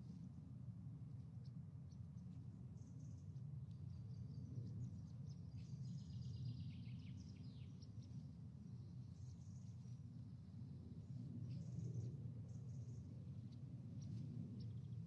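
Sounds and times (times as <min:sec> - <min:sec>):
birdsong chirps and twitters: 0:02.8 - 0:10.0.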